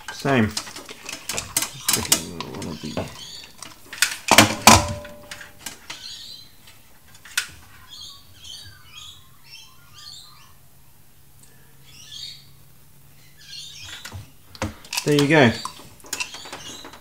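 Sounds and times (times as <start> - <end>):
small bird chirping: 1.2 - 3.6, 7.7 - 14.2.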